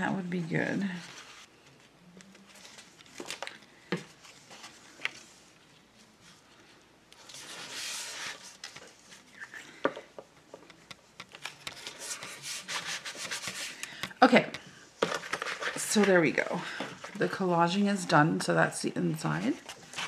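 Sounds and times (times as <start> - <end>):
paper rustling: 0.8 - 9.8, 10.6 - 14.0, 15.0 - 17.3, 19.5 - 20.0.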